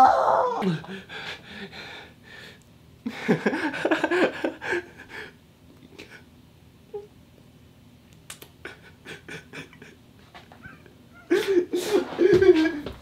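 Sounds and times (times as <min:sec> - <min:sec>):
man moaning: 0:00.0 - 0:01.1
breathless rapid laughter: 0:03.1 - 0:05.3, 0:08.6 - 0:10.0, 0:10.6 - 0:12.9.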